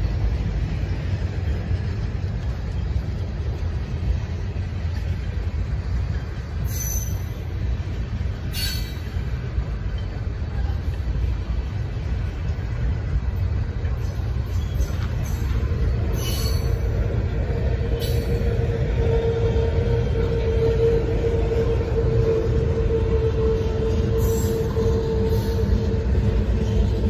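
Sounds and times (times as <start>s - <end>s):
train wheels rumbling on rail: 0.0s - 27.0s
high-pitched wheel squeals: 6.6s - 7.4s, 8.5s - 9.2s, 14.4s - 16.9s, 19.1s - 25.9s.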